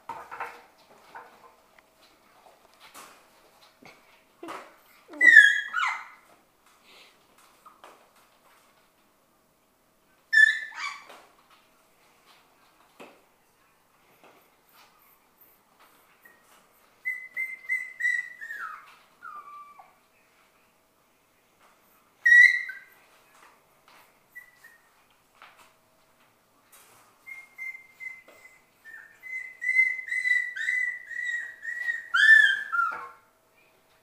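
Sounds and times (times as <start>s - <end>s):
puppies yelping and whining: 5.1s - 6.2s, 10.3s - 11.1s, 16.2s - 20.0s, 22.2s - 23.0s, 24.3s - 24.9s, 27.2s - 33.2s.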